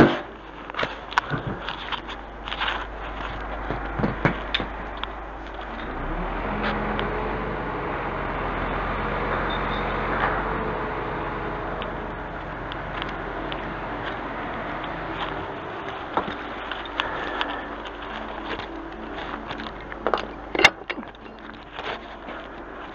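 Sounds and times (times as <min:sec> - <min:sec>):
truck diesel engine running: 0:00.0 - 0:22.9
sharp clicks and knocks: 0:14.8 - 0:22.6.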